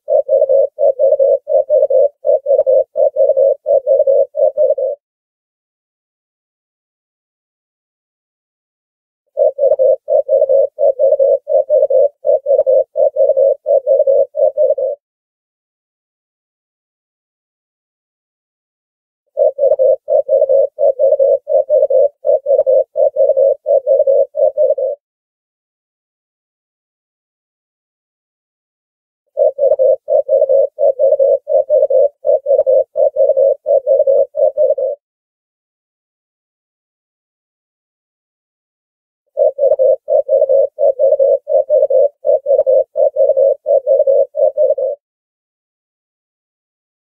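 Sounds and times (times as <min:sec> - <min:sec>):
dove cooing: 0:00.0 - 0:05.0, 0:09.3 - 0:15.0, 0:19.3 - 0:25.0, 0:29.4 - 0:35.0, 0:39.3 - 0:45.0.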